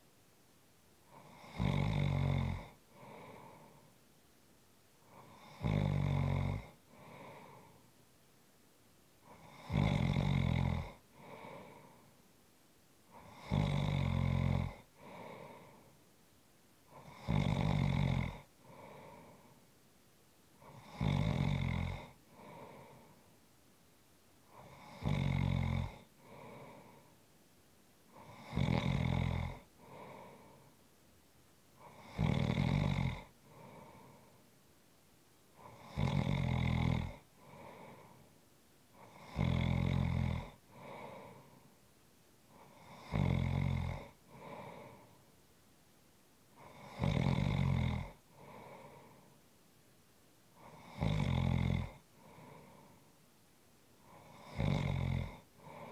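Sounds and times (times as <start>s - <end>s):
person snoring: 1.1s - 3.9s, 5.1s - 7.8s, 9.2s - 12.1s, 13.1s - 15.9s, 16.9s - 19.6s, 20.6s - 23.3s, 24.5s - 27.1s, 28.1s - 30.7s, 31.8s - 34.4s, 35.6s - 38.3s, 39.0s - 41.7s, 42.5s - 45.2s, 46.6s - 49.3s, 50.6s - 53.1s, 54.0s - 55.9s
soft breath sound: 2.6s - 5.7s, 6.7s - 8.3s, 10.9s - 13.5s, 14.7s - 17.3s, 18.4s - 21.4s, 22.0s - 25.1s, 25.9s - 28.6s, 29.5s - 32.3s, 33.2s - 36.2s, 37.0s - 45.6s, 48.0s - 49.7s, 51.8s - 55.9s.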